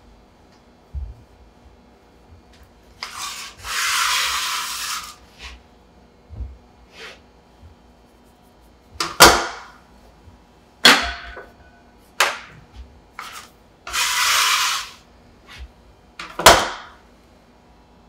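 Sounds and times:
metal scraper scraping wooden counter: 0:03.0 - 0:05.6, 0:13.2 - 0:15.7.

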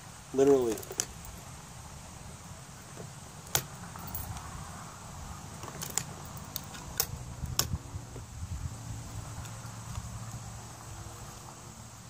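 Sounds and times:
metallic clicks of rifle handling: 0:05.6 - 0:07.8.

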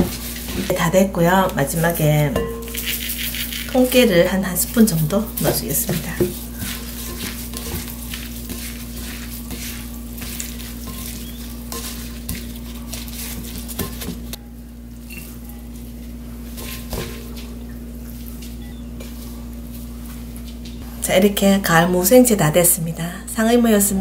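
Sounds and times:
wet crackly rustle of radish: 0:02.7 - 0:16.2.

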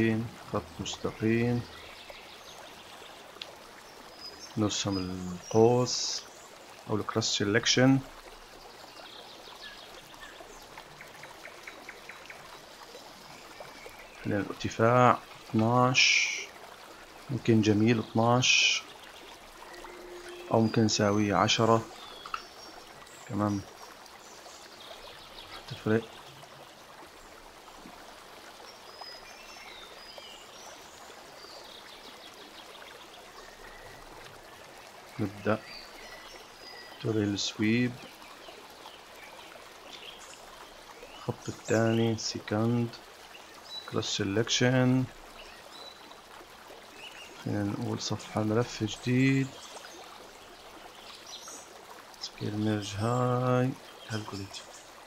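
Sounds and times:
low background hiss: 0:00.0 - 0:55.0
faint ticks: 0:03.3 - 0:03.6, 0:22.1 - 0:22.6.

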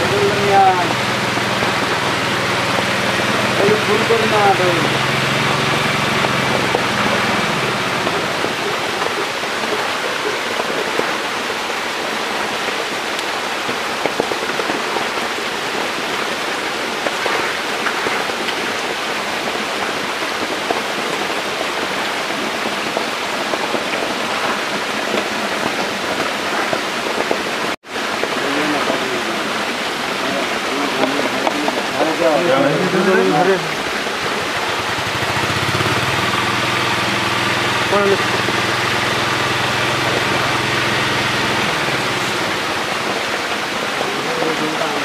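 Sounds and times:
low motor hum: 0:00.0 - 0:09.4, 0:34.3 - 0:43.2
water rushing and pattering: 0:00.0 - 0:45.0.

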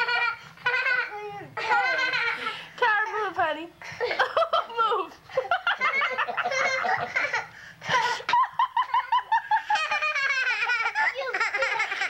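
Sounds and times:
children laughing and squealing: 0:00.0 - 0:02.6, 0:05.5 - 0:12.0.

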